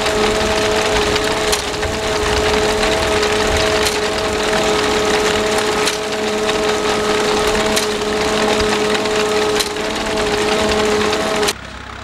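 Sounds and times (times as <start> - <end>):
binder mechanical clatter: 0.0 - 12.0
steady mechanical whine: 0.0 - 12.0
tractor engine running: 0.0 - 12.0.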